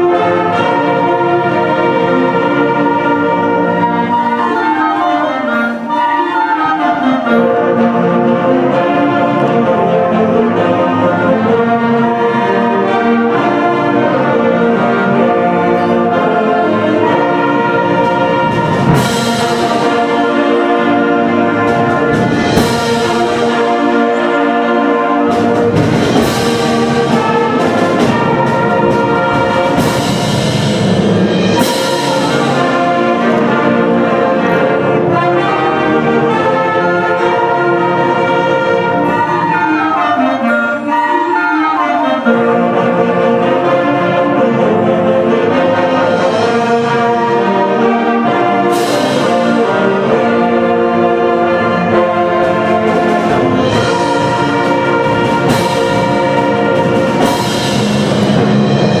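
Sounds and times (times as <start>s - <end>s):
concert band playing: 0.0s - 59.0s.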